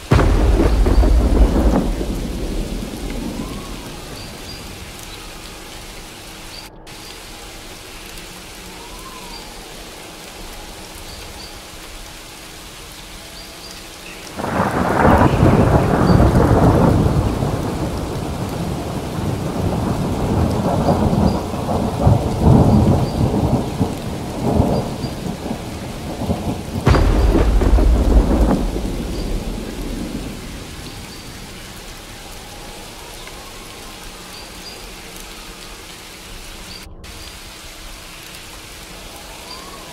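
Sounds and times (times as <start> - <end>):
sharp thunder clap: 0.0 - 5.0, 14.4 - 31.6
rolling thunder: 0.0 - 5.4, 14.3 - 32.6
steady rain: 0.0 - 39.9.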